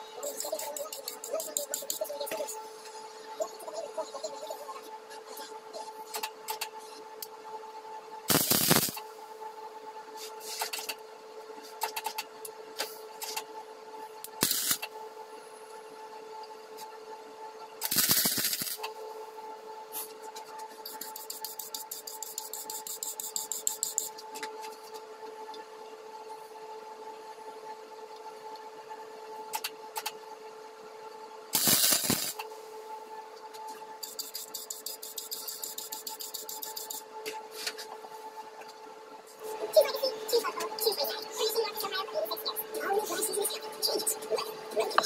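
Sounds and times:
steady hum: 0.0 - 45.0
welding arc crackle: 8.3 - 9.0, 14.3 - 14.9, 17.8 - 18.9, 31.6 - 32.4, 34.0 - 37.0.

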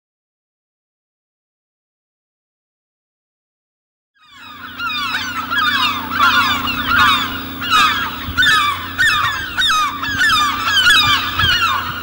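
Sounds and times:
birds honking calls: 4.2 - 12.0
steady low hum: 4.2 - 12.0.

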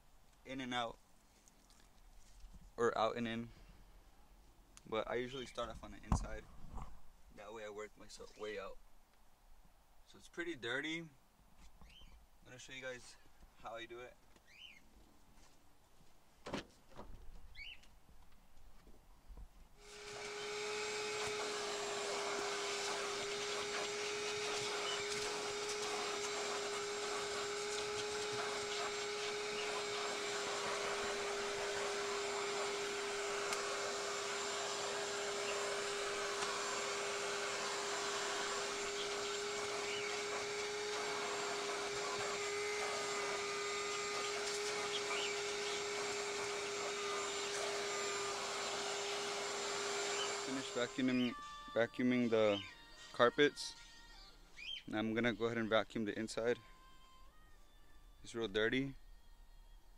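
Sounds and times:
vacuum cleaner running: 19.8 - 51.5.

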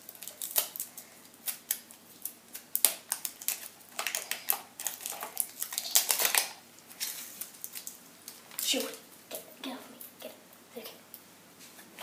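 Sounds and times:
plastic wrapper crinkling: 0.0 - 9.0.

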